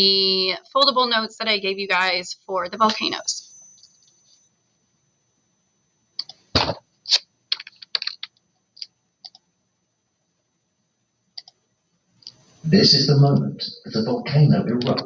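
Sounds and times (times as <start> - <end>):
keyboard and mouse clicks: 7.1 - 9.4, 11.4 - 11.6.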